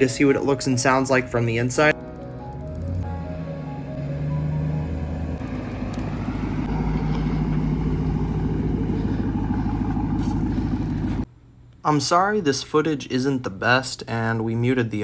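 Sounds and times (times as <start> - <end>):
truck engine driving by: 1.9 - 11.3.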